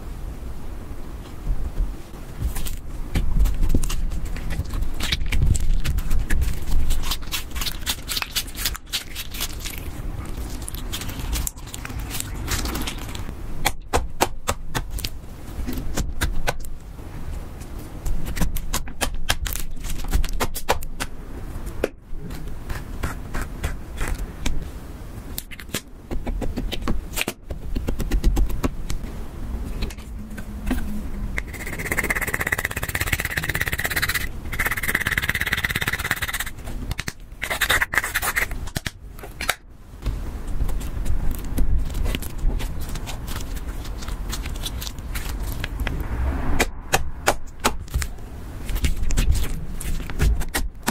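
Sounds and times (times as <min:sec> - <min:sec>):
gritty scratching of eyeshadow: 0:03.5 - 0:13.3, 0:31.4 - 0:36.6, 0:37.4 - 0:38.7.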